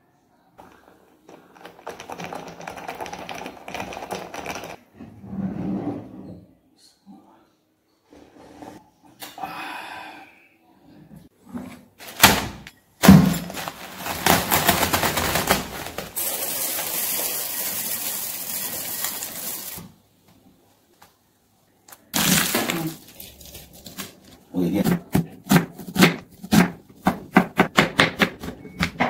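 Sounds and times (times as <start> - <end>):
plastic bag crinkling: 13.3 - 19.8, 22.1 - 24.4.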